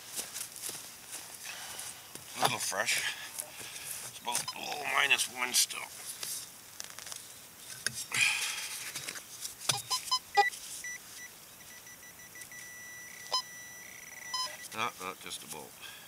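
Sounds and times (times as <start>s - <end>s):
metal detector beeps: 4.4s - 4.7s, 9.7s - 14.8s
metal detector steady high tone: 4.4s - 4.8s, 9.7s - 14.8s.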